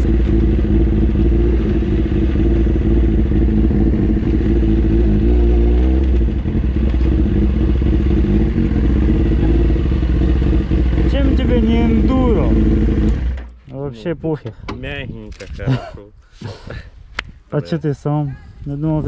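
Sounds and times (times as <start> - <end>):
motorcycle engine idling: 0.0 - 5.4, 6.0 - 13.5.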